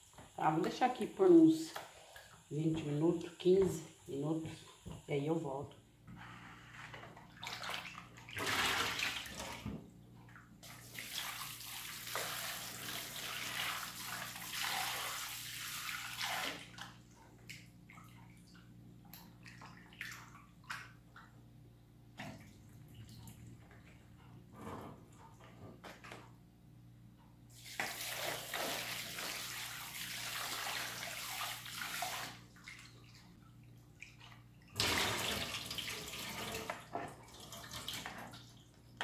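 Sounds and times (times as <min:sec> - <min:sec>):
splashing water: 0:07.3 - 0:09.6.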